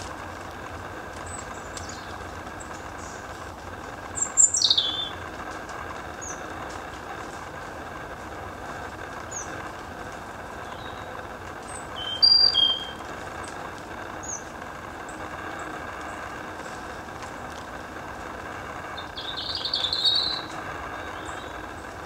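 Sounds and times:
low background rush: 0:00.0 - 0:22.0
small birds calling: 0:00.0 - 0:22.0
whistled bird notes: 0:04.2 - 0:05.2, 0:10.6 - 0:11.1, 0:11.7 - 0:13.0, 0:19.0 - 0:21.6.

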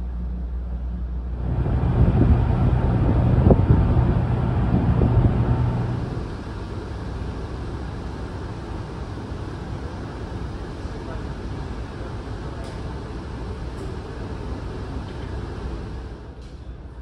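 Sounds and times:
low rumble: 0:00.0 - 0:06.5
steady cabin hum: 0:00.0 - 0:10.0
wind noise on microphone: 0:01.3 - 0:06.4.

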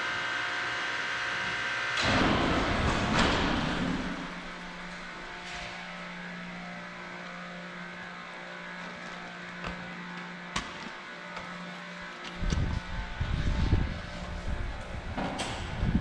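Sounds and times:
steady machine hum: 0:00.0 - 0:16.0.

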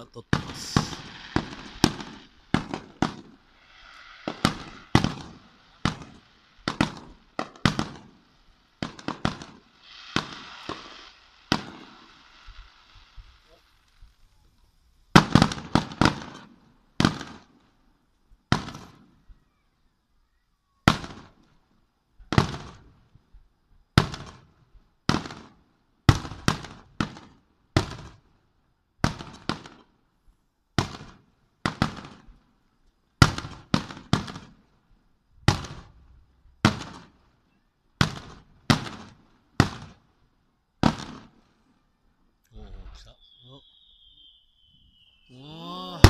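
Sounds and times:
firework shells bursting: 0:00.0 - 0:17.6.

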